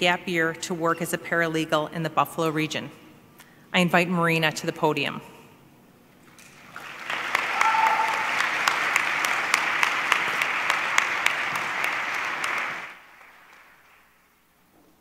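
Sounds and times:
audience applauding: 6.3s - 14.5s.

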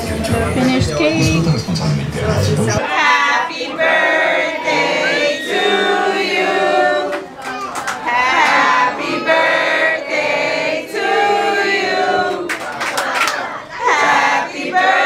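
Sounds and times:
group singing a birthday song: 0.0s - 15.0s.

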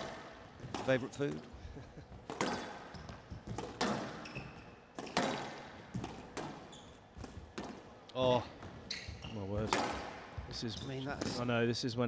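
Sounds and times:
court shoes squeaking: 0.0s - 11.5s
squash ball striking: 2.2s - 8.0s, 9.5s - 10.6s.

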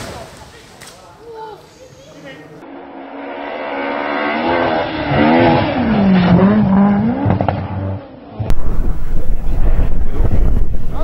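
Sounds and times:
rally car engine approaching: 2.5s - 11.0s.

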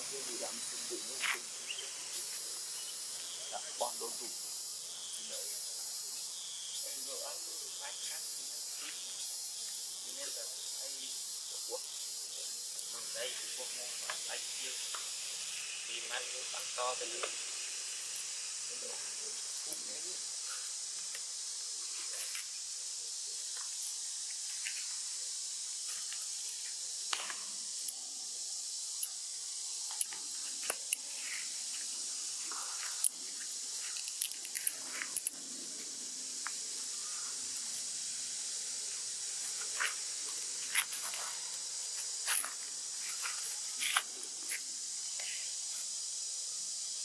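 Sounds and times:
high-pitched insect chorus: 0.0s - 47.0s
small clicks and rustles: 32.5s - 35.4s.

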